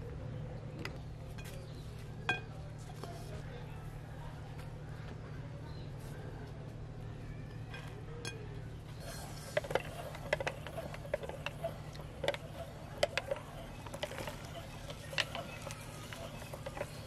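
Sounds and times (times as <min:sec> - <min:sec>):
corn kernels clicking on metal: 0:09.0 - 0:17.0.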